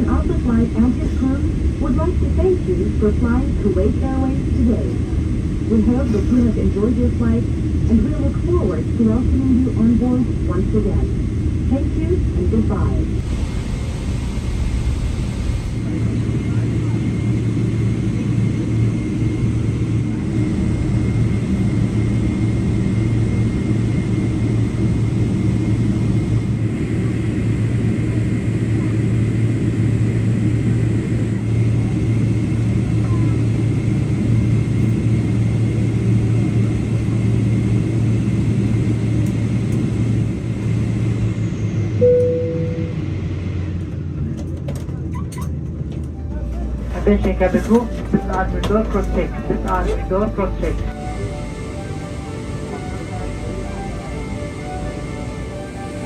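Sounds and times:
aircraft cabin rumble: 0.0 - 56.0
short chime: 42.0 - 43.0.

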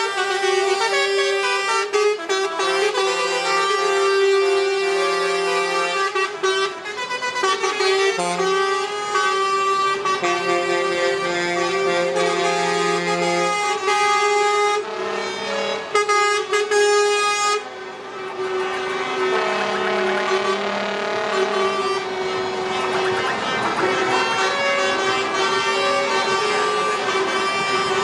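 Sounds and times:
lorry air horns blaring: 0.0 - 28.0.

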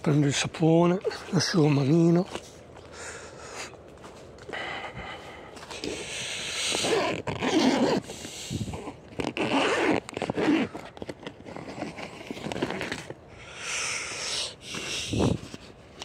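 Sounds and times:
tent zipper: 5.7 - 13.1
tent fabric rustling: 8.7 - 13.2.

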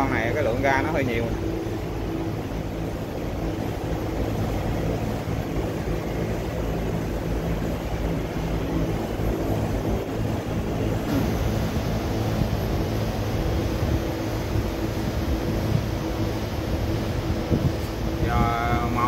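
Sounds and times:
air-conditioner units droning: 0.0 - 19.0.

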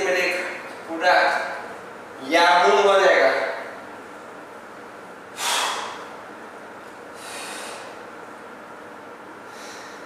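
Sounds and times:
man breathing hard: 5.4 - 6.1, 7.1 - 8.0, 9.4 - 10.0.

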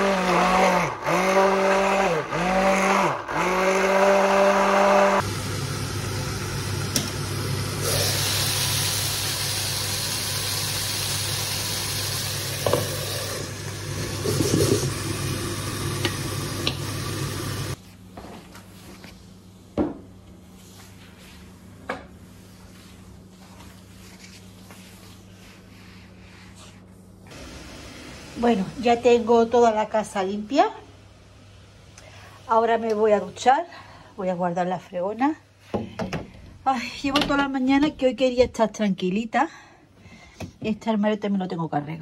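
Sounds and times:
chicken sizzling in a frying pan: 5.2 - 13.9.

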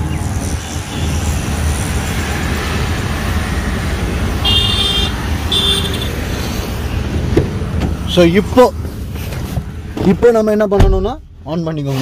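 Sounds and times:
road traffic rumble: 0.0 - 12.0
vehicle horn tooting: 4.4 - 6.1.

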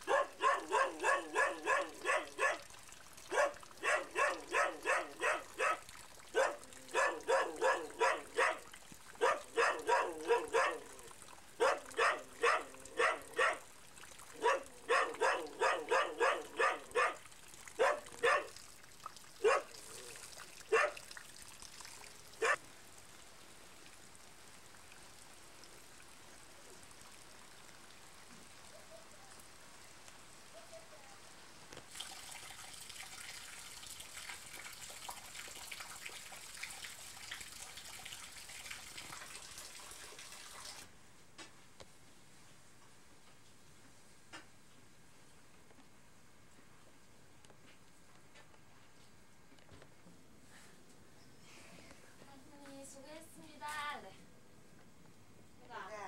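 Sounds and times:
dog barking: 0.0 - 2.7, 3.3 - 8.6, 9.2 - 10.9, 11.6 - 13.6, 14.4 - 17.2, 17.8 - 18.6, 19.4 - 19.8, 20.7 - 21.0, 22.4 - 22.6.

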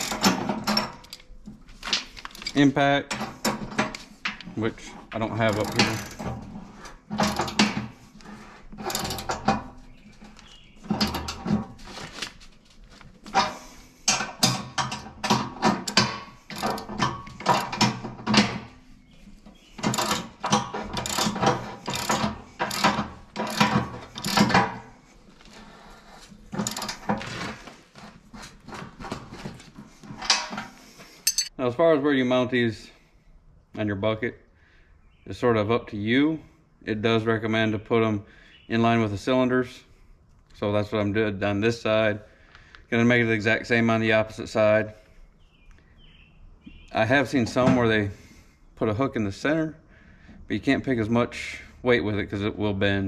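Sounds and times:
socket ratchet clicking: 19.8 - 24.5.

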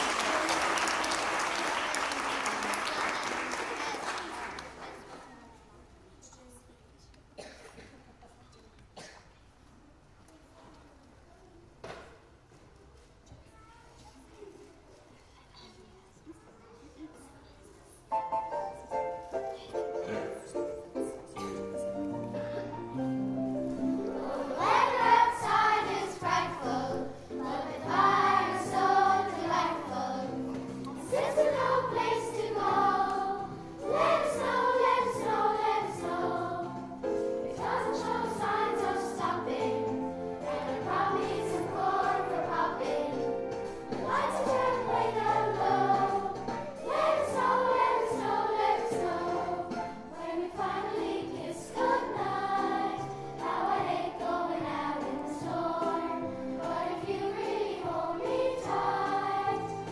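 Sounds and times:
children's choir singing: 0.0 - 5.2, 22.2 - 59.9.

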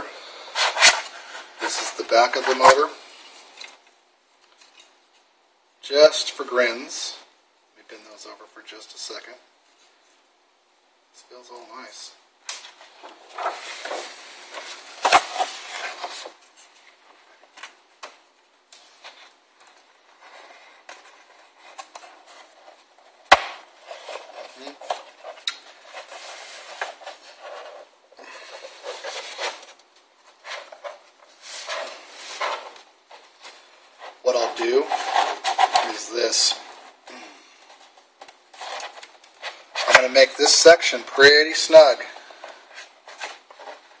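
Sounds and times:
paper rustling and crinkling: 12.8 - 17.8, 18.8 - 37.0.

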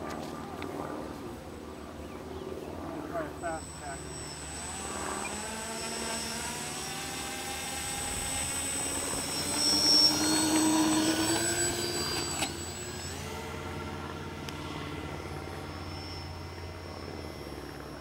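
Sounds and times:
model plane electric motors whining: 0.0 - 18.0.

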